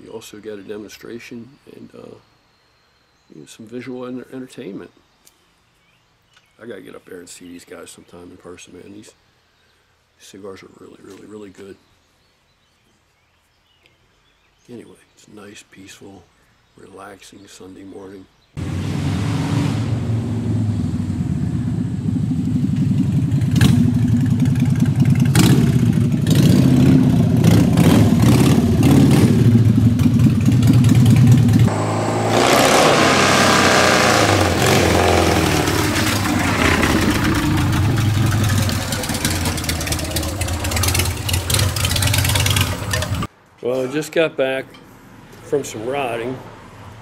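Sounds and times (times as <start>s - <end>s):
motorcycle engines revving: 18.6s - 43.3s.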